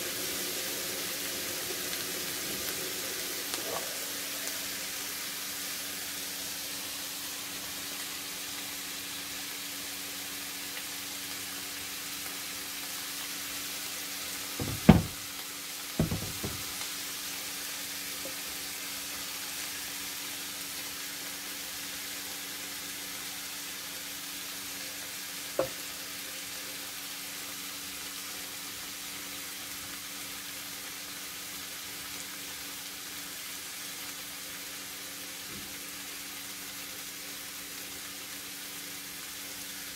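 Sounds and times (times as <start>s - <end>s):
vegetables sizzling in a pan: 0.0s - 39.9s
loud knocks: 14.6s - 15.2s, 16.0s - 16.7s.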